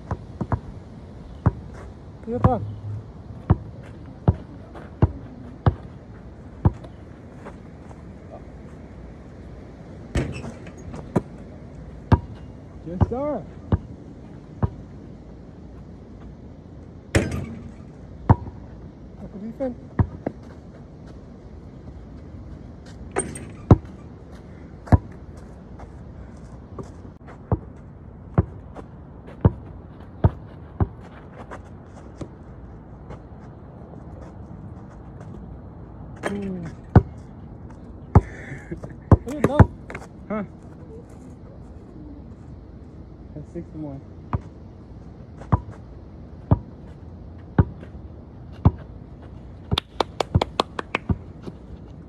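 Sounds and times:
basketball bouncing on dirt: 0.0s - 0.8s, 1.4s - 7.0s, 10.1s - 11.4s, 12.0s - 14.0s, 14.6s - 14.9s, 17.2s - 18.6s, 19.9s - 20.9s, 22.9s - 24.1s, 24.8s - 25.2s, 26.8s - 32.4s, 36.2s - 37.2s, 38.1s - 40.1s, 44.3s - 44.6s, 45.4s - 48.0s, 48.6s - 49.0s, 49.6s - 51.6s.

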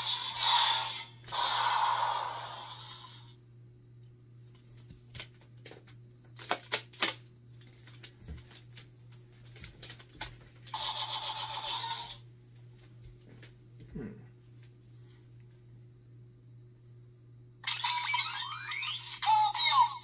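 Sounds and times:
toy blaster electronic sound effect: 0.0s - 3.2s, 10.8s - 12.2s, 17.6s - 20.0s
plastic toy clicks and clacks: 6.4s - 7.2s.

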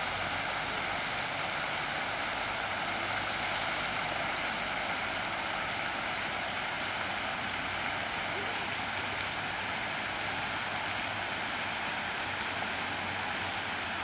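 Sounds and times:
fountain rushing and splashing: 0.0s - 14.0s.

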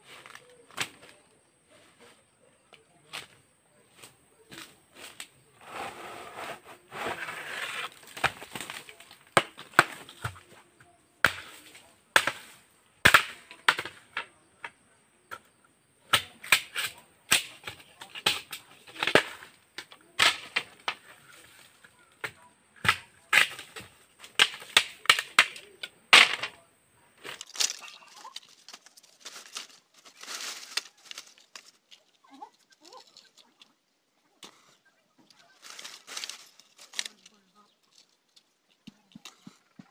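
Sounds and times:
bamboo cracking and clattering: 0.0s - 1.8s, 2.7s - 5.5s, 6.9s - 39.9s
rustling: 3.0s - 10.8s, 23.4s - 39.9s.

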